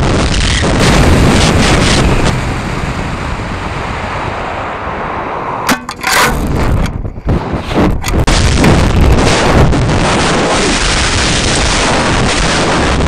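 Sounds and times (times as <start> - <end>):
sharp crack: 5.7 - 13.0.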